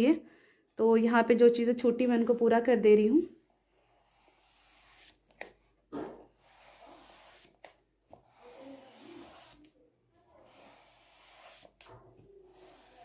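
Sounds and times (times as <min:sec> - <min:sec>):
sponge rubbing on canvas: 0:03.4 - 0:05.2, 0:06.3 - 0:07.6, 0:08.2 - 0:09.7, 0:10.3 - 0:13.0.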